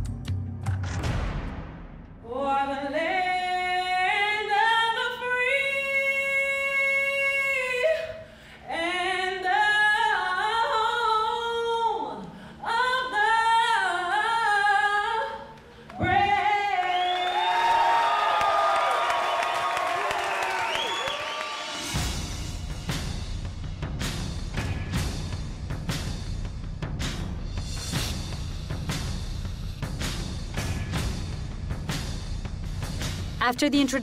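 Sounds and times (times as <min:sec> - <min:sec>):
crowd cheering and applauding: 0:16.0 - 0:22.2.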